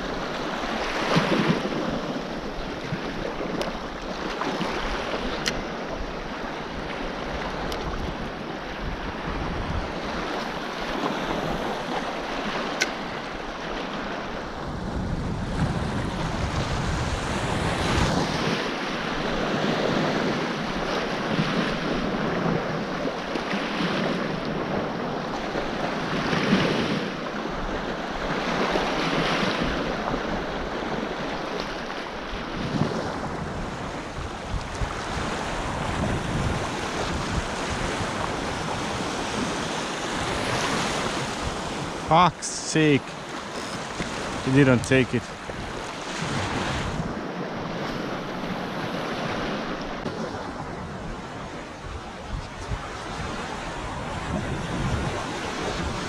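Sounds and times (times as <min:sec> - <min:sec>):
small waves washing in shallows: 0:00.0 - 0:56.0
wind buffeting microphone: 0:00.7 - 0:13.4, 0:14.0 - 0:23.2, 0:32.3 - 0:42.1, 0:43.2 - 0:56.0.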